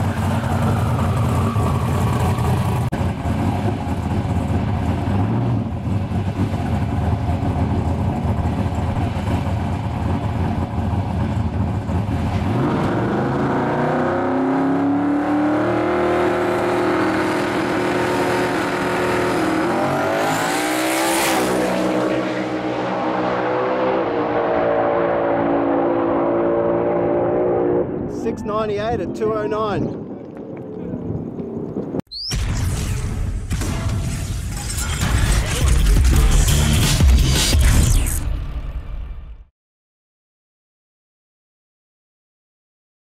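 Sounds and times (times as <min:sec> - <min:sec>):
drag car engine revving: 0:01.1 - 0:28.1.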